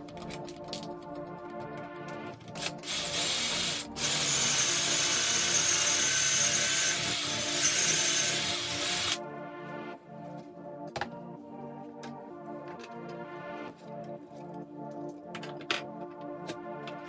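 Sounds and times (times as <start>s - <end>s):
cordless drill boring into wood: 2.8s - 9.2s.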